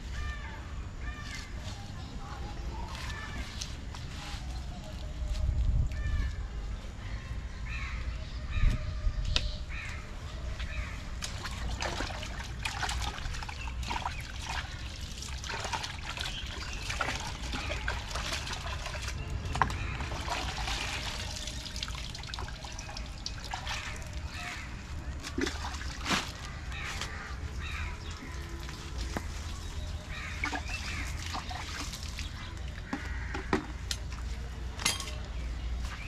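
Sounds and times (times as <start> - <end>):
water splashing in a bucket: 11.1 - 33.8.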